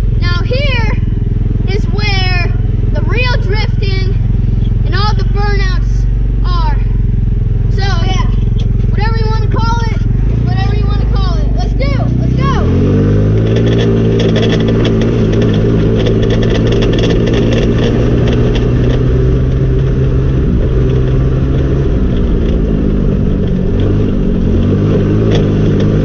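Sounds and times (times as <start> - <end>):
go-kart engine running: 0.0 - 26.0
rattling clicks: 13.3 - 20.1.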